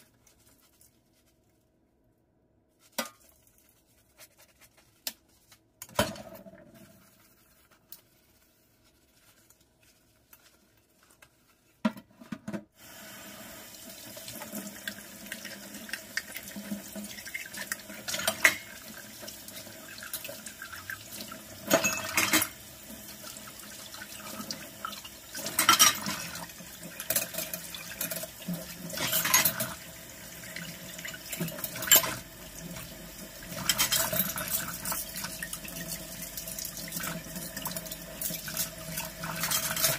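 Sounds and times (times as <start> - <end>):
tap water running into sink: 12.8 - 39.9.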